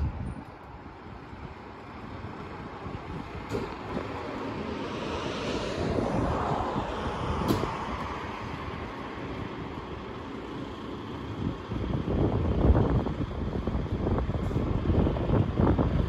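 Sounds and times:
diesel engine running: 0:05.8 - 0:16.0.

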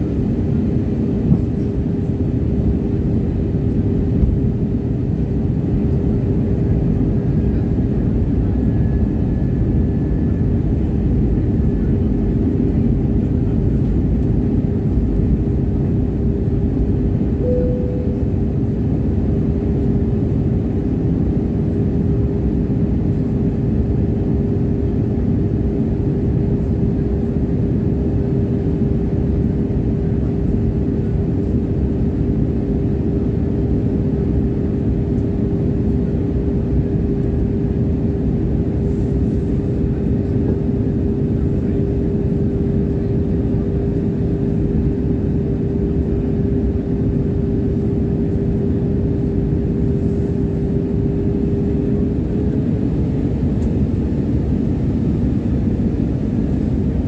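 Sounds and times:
constant hum tone: 0:00.0 - 0:57.0
jet airliner cabin noise: 0:00.0 - 0:57.0
brief higher tone: 0:17.4 - 0:18.6.

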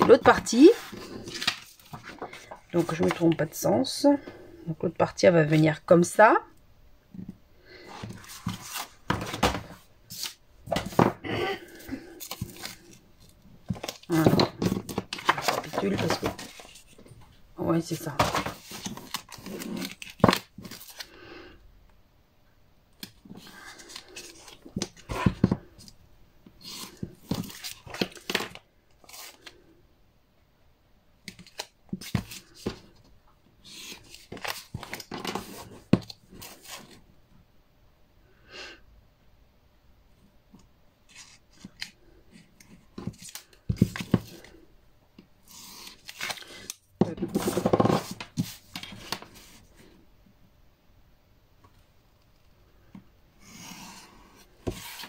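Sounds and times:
paper rustling and scraping: 0:00.1 - 0:03.4, 0:07.9 - 0:11.1, 0:13.7 - 0:17.2, 0:18.2 - 0:21.1, 0:33.6 - 0:37.0, 0:41.1 - 0:41.9, 0:45.5 - 0:49.7, 0:53.5 - 0:55.0.

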